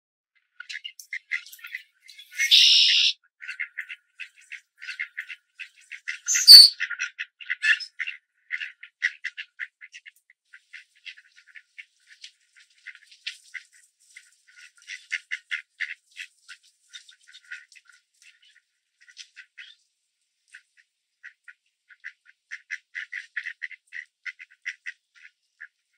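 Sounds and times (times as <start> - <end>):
ducks quacking: 1.1 - 19.8, 20.6 - 25.8.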